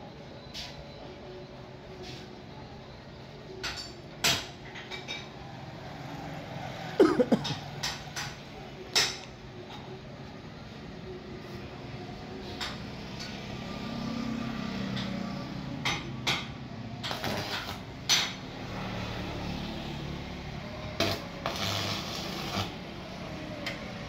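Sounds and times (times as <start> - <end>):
welding arc crackling: 17.0 - 18.2, 21.0 - 22.9.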